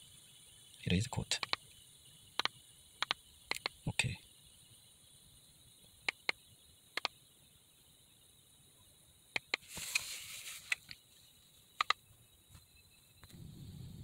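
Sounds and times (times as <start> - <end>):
plastic buttons clicking: 1.4 - 1.6, 2.4 - 3.8
handling rustle: 9.6 - 11.6.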